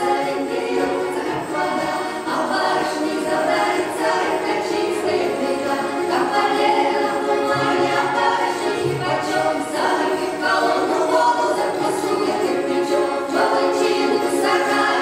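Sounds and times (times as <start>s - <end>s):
women singing in harmony: 0.0s - 15.0s.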